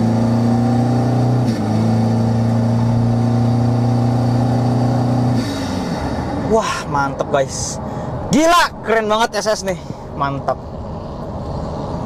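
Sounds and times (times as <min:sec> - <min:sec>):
diesel engine accelerating: 0:00.0 - 0:09.3.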